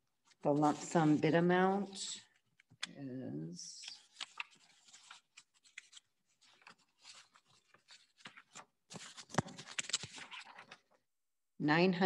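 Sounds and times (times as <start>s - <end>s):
paper sheets rustling: 0.2s - 2.0s, 3.8s - 11.0s.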